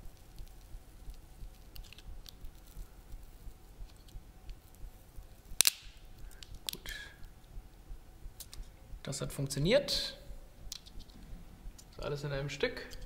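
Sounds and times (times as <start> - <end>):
glue snapping: 5.5 - 6.9, 10.7 - 11.2
spatula prying clicks and crackles: 5.5 - 6.9.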